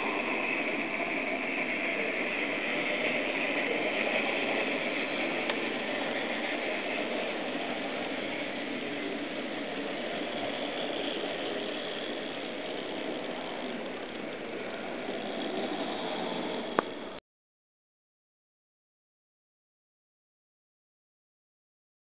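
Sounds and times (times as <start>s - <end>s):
model trains running: 0.0s - 17.2s.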